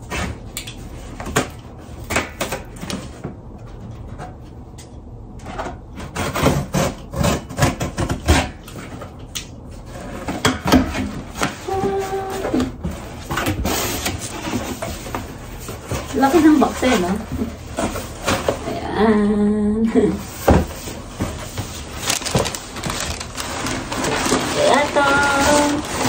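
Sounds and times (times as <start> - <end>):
cardboard rubbing and scraping: 20.3 - 26.0.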